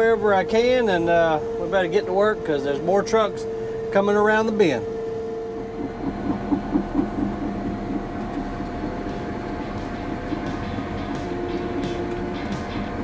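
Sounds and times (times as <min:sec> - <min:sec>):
bulldozer engine running: 0:04.8 - 0:13.0
steel tracks clanking: 0:05.6 - 0:13.0.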